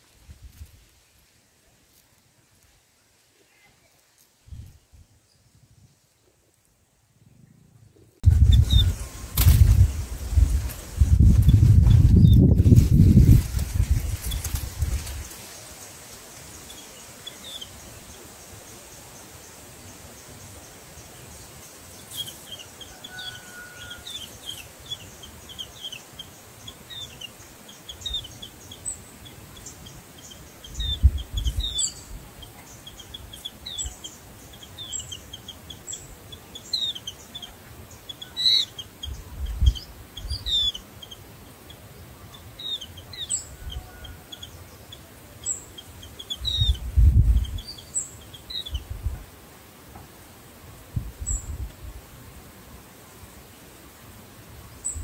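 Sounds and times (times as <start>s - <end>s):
birds chirping: 7.2s - 49.0s.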